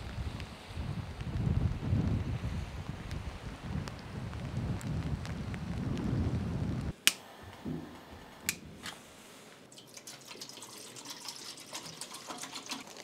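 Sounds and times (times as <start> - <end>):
wind buffeting microphone: 0.0 - 8.9
sharp clicks: 6.9 - 7.6
water pouring into metal pot: 9.7 - 13.0.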